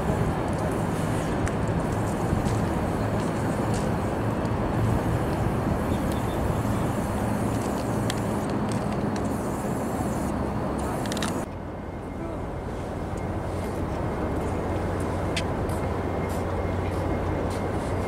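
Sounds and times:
rumbling yard noise: 0.0s - 11.5s
diesel train engine hum: 0.0s - 18.0s.

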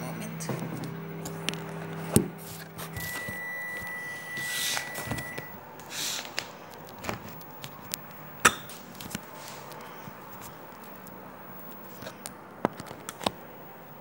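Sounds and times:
high beep-like tone: 3.0s - 5.6s.

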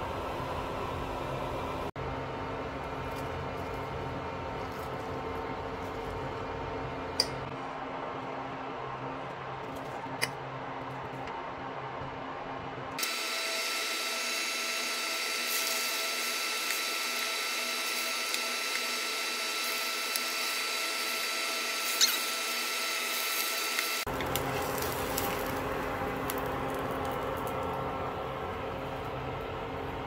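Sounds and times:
omelette sizzling in oil: 13.6s - 27.5s.

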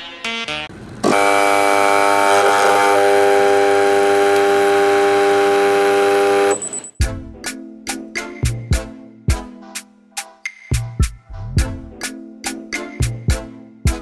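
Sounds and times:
espresso machine pump buzzing: 1.0s - 6.6s.

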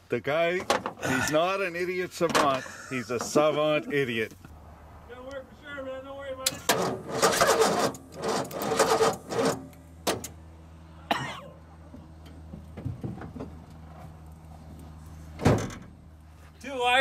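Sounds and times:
steady low hum: 0.0s - 17.0s
truck starter motor cranking: 6.4s - 10.4s.

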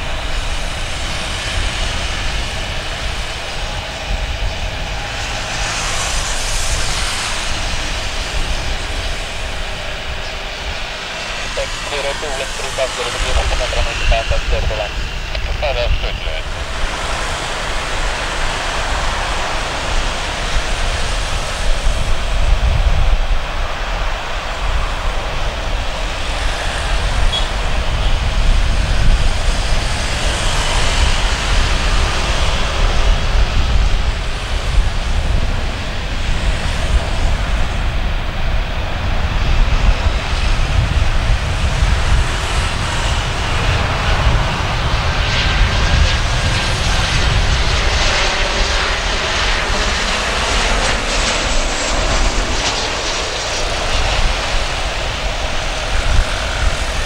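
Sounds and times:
jet engines rushing: 0.0s - 57.0s.

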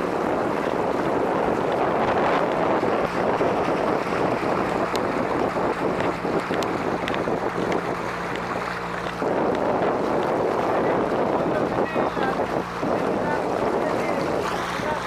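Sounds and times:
boat motor humming: 0.0s - 15.0s
wind and water rushing: 0.0s - 15.0s
wind buffeting microphone: 0.0s - 15.0s.

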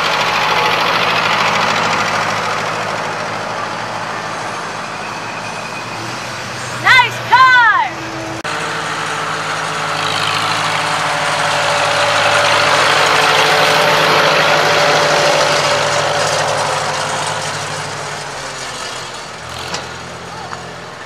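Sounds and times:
tractor engine passing by: 0.0s - 21.0s.

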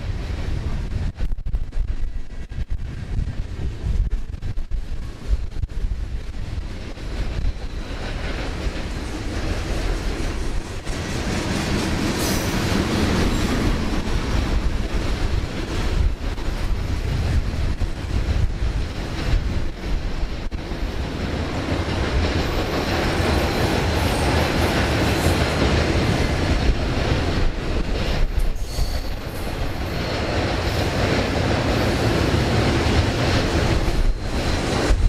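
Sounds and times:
train wheels rumbling on rails: 0.0s - 35.0s
high wheel squeal: 28.6s - 30.2s.

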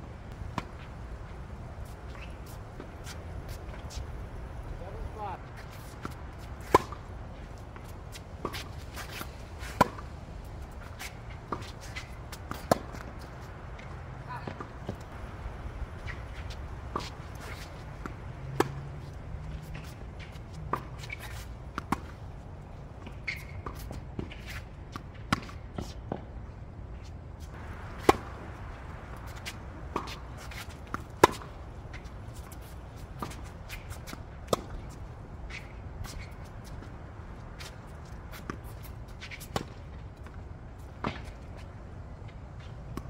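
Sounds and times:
sneakers scuffing on court: 0.5s - 4.3s, 4.9s - 15.1s, 16.0s - 22.2s, 27.0s - 41.7s
racket hitting tennis ball: 5.6s - 15.1s, 16.0s - 22.2s, 27.6s - 36.9s
tennis ball bouncing: 5.7s - 15.1s, 15.9s - 22.2s, 27.6s - 36.9s.

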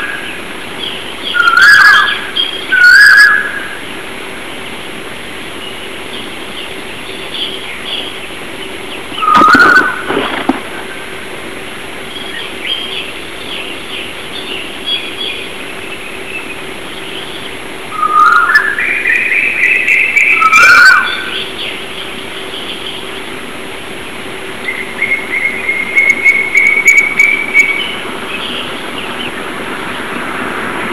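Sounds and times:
fast bird trill: 0.0s - 3.8s, 9.1s - 10.4s, 16.4s - 23.1s, 24.6s - 29.3s
bird song gliding upward: 0.0s - 4.7s, 5.5s - 11.2s, 12.0s - 23.4s, 24.6s - 30.9s
birds chirping and twittering: 0.0s - 30.9s
faint hum: 0.0s - 30.9s.

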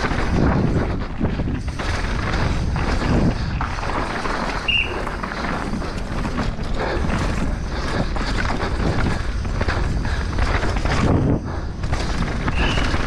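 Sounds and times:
bike rattling over bumps: 0.0s - 13.0s
tyres crunching and skidding on dirt: 0.0s - 13.0s
wind on microphone: 0.0s - 13.0s.

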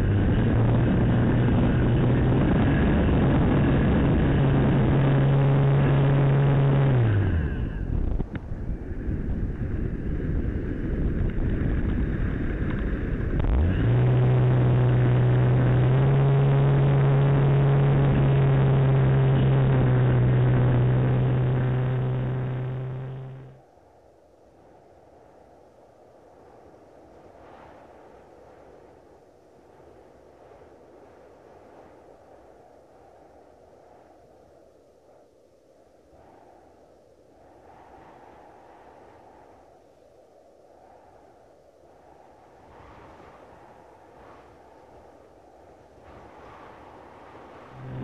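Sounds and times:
electric motor and propeller: 0.0s - 23.6s, 46.1s - 48.0s
wind rush: 0.0s - 48.0s.

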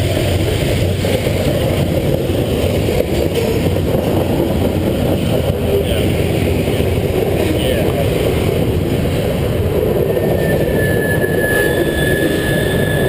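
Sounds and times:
freight train cars rolling past: 0.0s - 13.0s.

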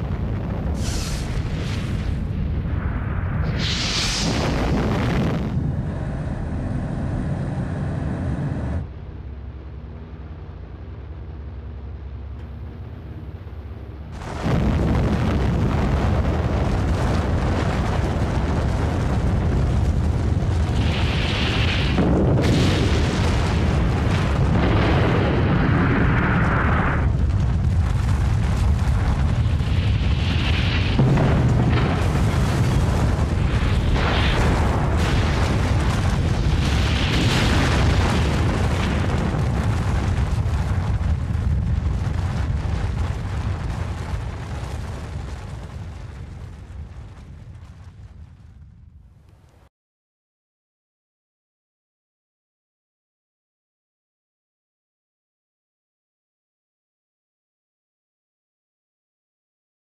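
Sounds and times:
bomb blast rumbling roar: 0.0s - 8.9s, 14.1s - 49.0s.

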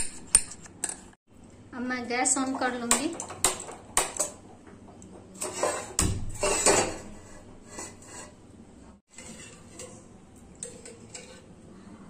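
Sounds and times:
metal wok clattering on stove: 2.5s - 8.4s, 9.1s - 11.6s.

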